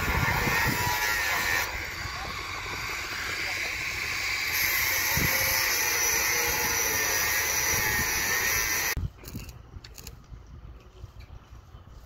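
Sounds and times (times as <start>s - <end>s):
angle grinder cutting steel: 0.0s - 9.0s.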